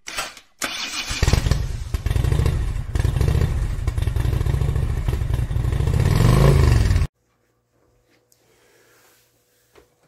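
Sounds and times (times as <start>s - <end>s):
motorcycle engine idling: 1.8s - 7.1s.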